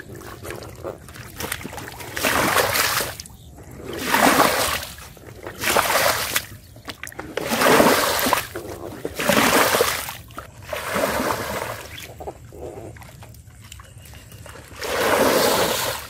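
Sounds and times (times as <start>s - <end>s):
water splashing onto mud: 1.1s - 3.3s, 3.9s - 12.1s.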